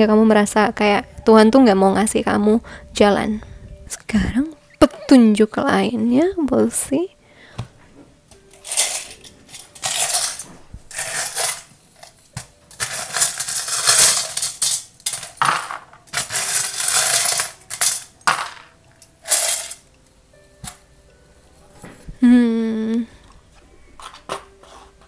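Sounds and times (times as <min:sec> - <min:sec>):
metal trinkets clattering: 0:08.5 - 0:19.9.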